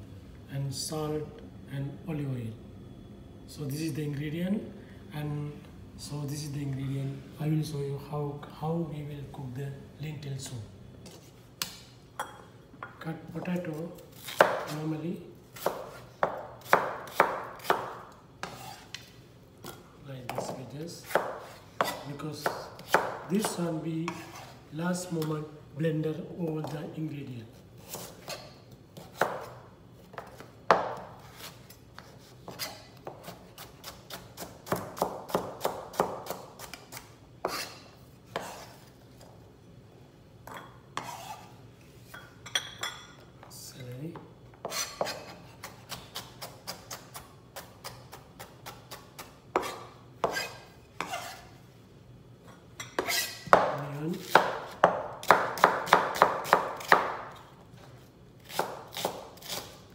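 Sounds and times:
knife chopping on plastic board: 15.6 - 18.8, 19.6 - 24.5, 27.8 - 29.5, 30.1 - 38.7, 44.6 - 51.2, 53.0 - 57.3, 58.4 - 59.7.

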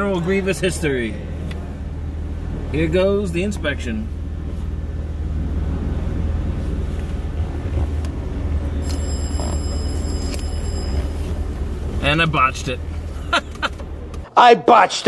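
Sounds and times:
vehicle engine idling: 0.0 - 14.3
faint high-pitched tones: 8.8 - 12.3.

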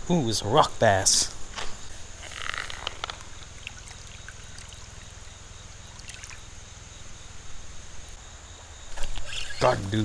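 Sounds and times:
river water lapping at bank: 3.4 - 6.5.

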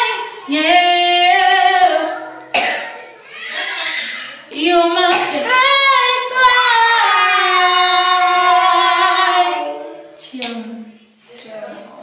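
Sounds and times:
woman singing along: 0.0 - 2.5, 4.5 - 11.0
child singing: 0.0 - 10.9.

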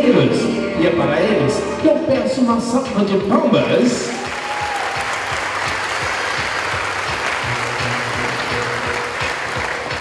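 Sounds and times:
background music with a beat: 0.0 - 10.0
audience applauding: 3.7 - 10.0.

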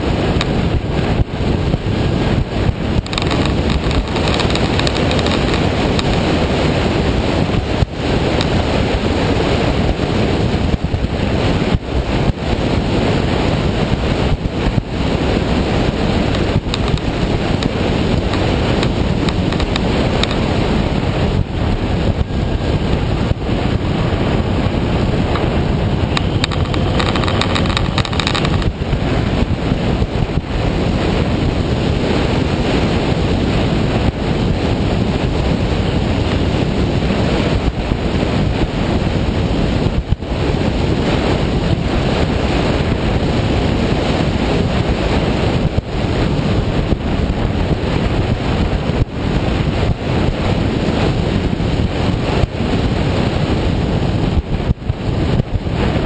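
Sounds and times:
motorcycle engine: 0.0 - 31.4
road noise: 0.0 - 56.0
wind buffeting microphone: 0.0 - 56.0.

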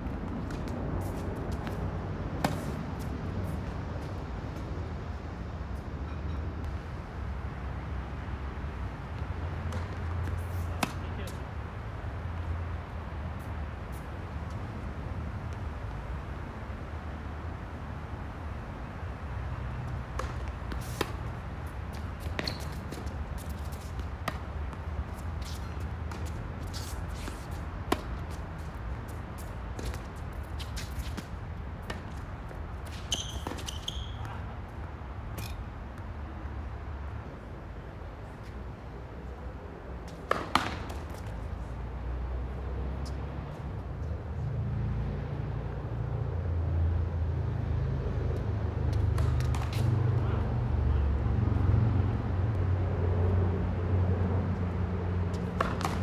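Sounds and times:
distant tennis strokes and bounces: 0.0 - 4.7, 9.0 - 12.5, 19.5 - 36.2, 38.4 - 41.6, 48.3 - 50.2, 55.2 - 56.0
racket striking tennis ball: 9.6 - 11.4, 20.1 - 28.5, 29.7 - 34.2, 35.3 - 35.6, 40.1 - 41.3, 49.0 - 49.9, 55.3 - 56.0.

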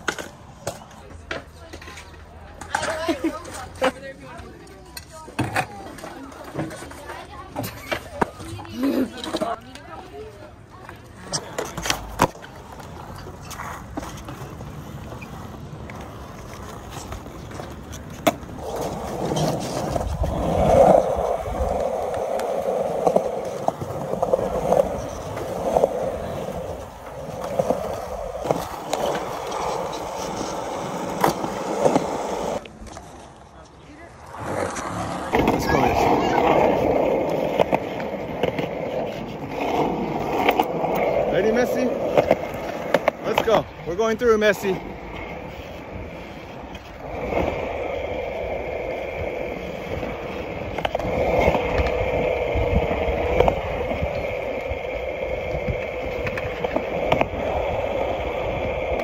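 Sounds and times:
skateboard wheels rolling on concrete: 0.0 - 59.0.

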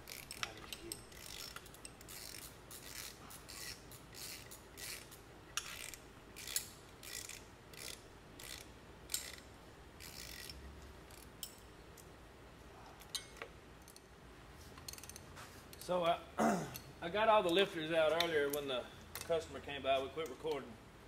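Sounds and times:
ratchet wrench clicking: 0.0 - 12.1, 14.8 - 16.0.

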